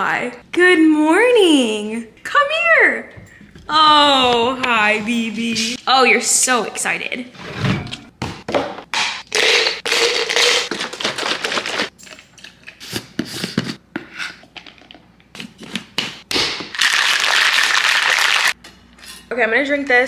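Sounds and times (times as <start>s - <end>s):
plastic shaker bottle shaken: 9.9s - 11.9s, 16.8s - 18.5s.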